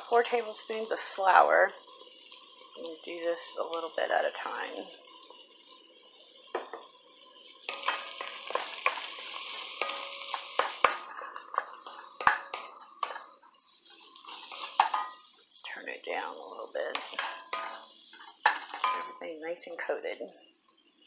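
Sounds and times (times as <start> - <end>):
vegetables sizzling in a pot: 0.0 - 21.0
wooden spoon scraping a pot: 7.7 - 15.2.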